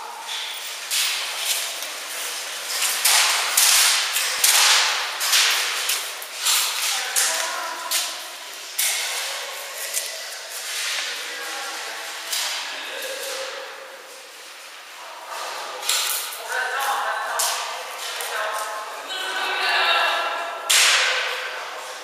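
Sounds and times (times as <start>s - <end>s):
faint voices: 0.0s - 22.0s.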